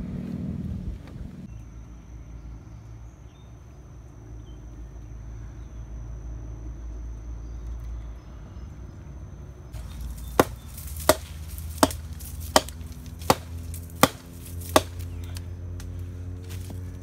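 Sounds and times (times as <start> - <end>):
hatchet chopping log: 9.8 - 16.0.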